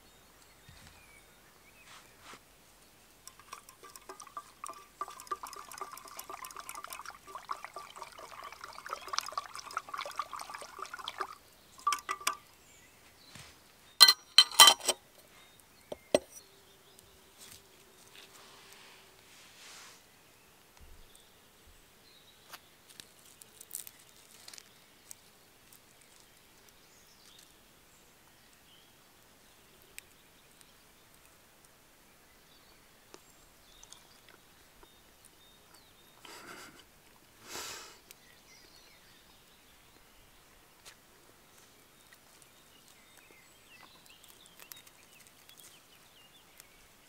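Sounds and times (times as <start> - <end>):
short rustles: 1.8 - 2.4.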